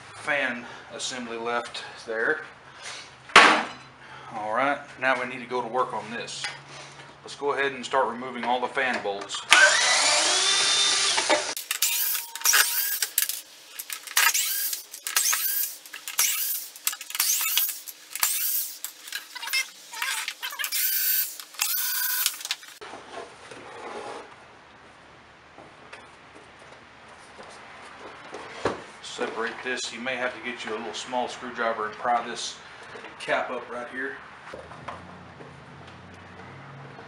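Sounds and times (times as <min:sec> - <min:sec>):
power drill whining: 0:09.5 - 0:22.8.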